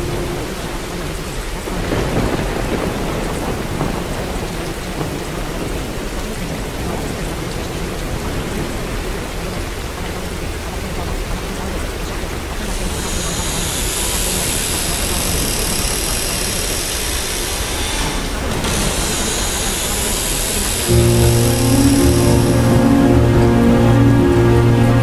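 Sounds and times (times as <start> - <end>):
thunder rumble: 0.0 - 10.8, 18.2 - 25.0
rain hissing: 0.0 - 25.0.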